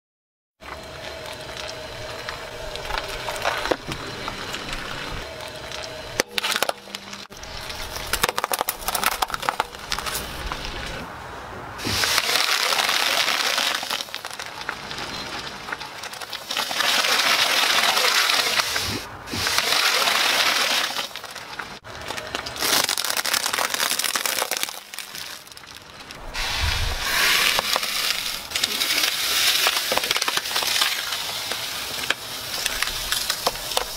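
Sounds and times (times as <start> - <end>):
tyre crushing objects: 2.5 - 10.9, 11.8 - 33.9
chalk crunching under tyre: 11.8 - 33.9
steady hissing noise: 26.0 - 33.9.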